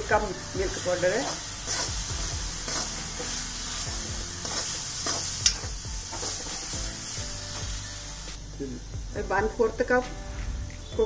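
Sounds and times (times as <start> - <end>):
light sizzle: 0.0 - 11.0.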